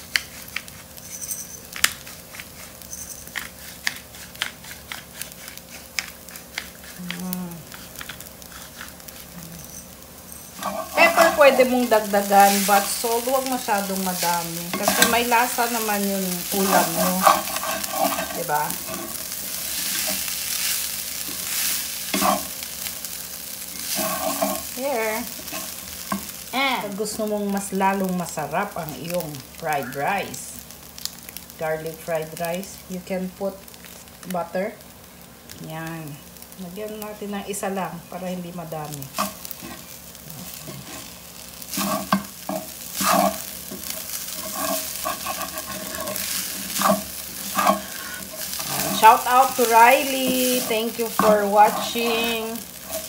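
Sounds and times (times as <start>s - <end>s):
rice sizzling in oil: 0.0s - 53.0s
wooden spatula scraping pan: 10.5s - 22.5s, 23.8s - 24.7s, 39.2s - 53.0s.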